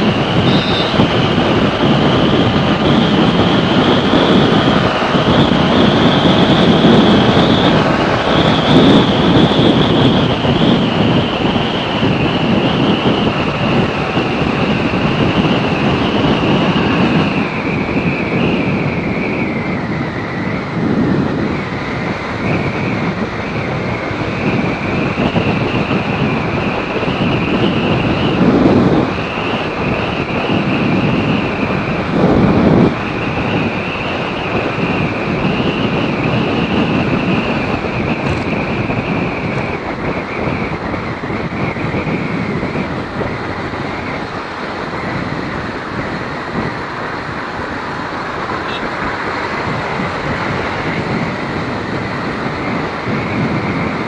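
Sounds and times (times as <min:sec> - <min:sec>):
motorcycle engine: 0:00.0 - 0:18.5, 0:42.4 - 0:52.6
wind rushing over microphone: 0:00.0 - 0:54.0.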